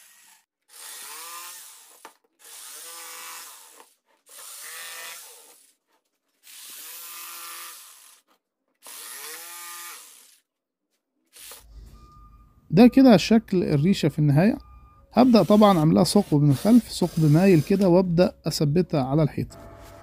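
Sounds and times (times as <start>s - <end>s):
jigsaw cutting wood panel: 0.0s - 10.5s, 15.2s - 18.0s, 19.5s - 20.0s.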